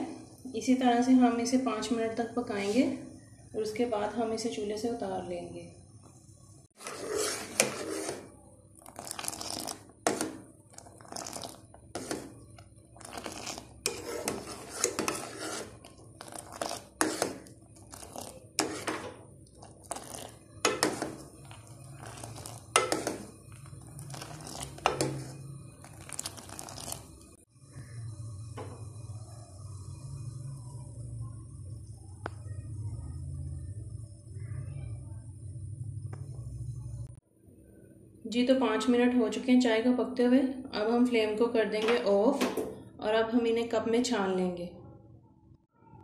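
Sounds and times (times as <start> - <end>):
metal ladle scraping saucepan: 6.8 - 27.2.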